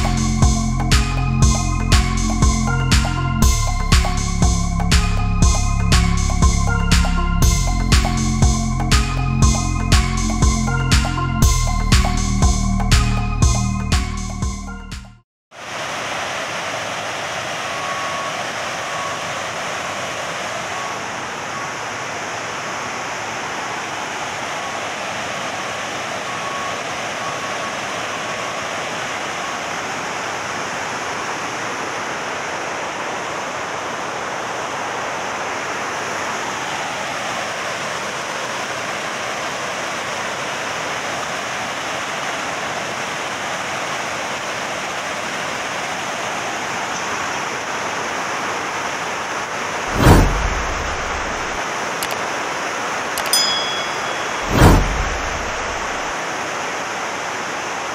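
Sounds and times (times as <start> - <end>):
water rushing over a spillway: 15.5 - 57.9.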